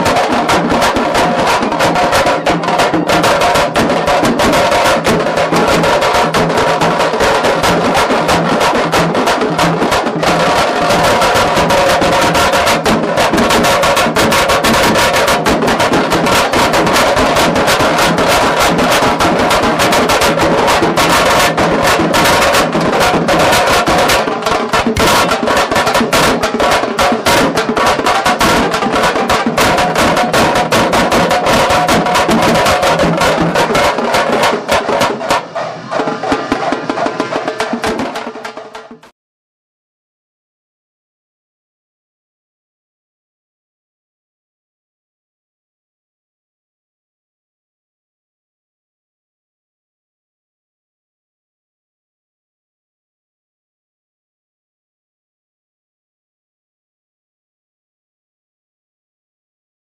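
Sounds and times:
fast dense drumming: 0.0s - 39.1s.

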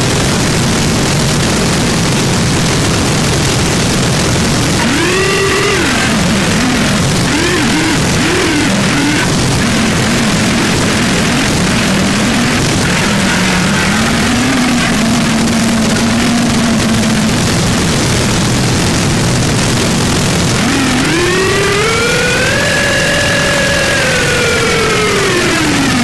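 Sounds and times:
harsh noise music: 3.5s - 26.0s
low wavering drone: 4.7s - 17.9s, 20.6s - 26.0s.

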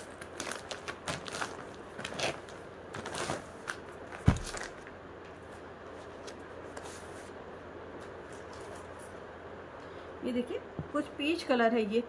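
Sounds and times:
plastic bag crinkling: 0.0s - 5.0s
fabric handling: 0.0s - 9.2s.

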